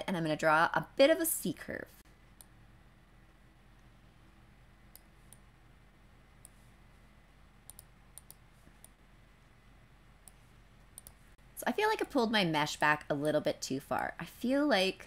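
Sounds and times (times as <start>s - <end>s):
faint computer mouse clicks: 7.6s - 9.0s, 10.2s - 11.2s.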